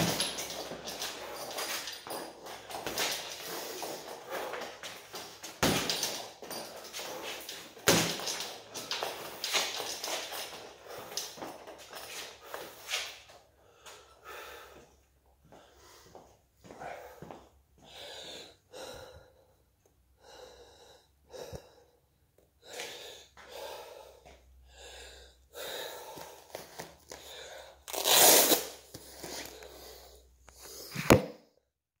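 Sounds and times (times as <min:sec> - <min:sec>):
person breathing hard: 0:00.1 - 0:05.3, 0:13.5 - 0:27.9, 0:29.0 - 0:31.1.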